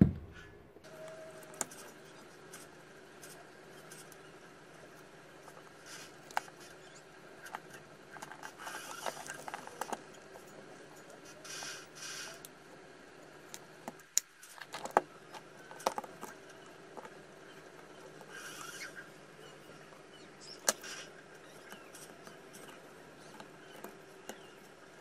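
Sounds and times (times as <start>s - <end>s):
plastic parts clicking and knocking: 13.5s - 18.2s.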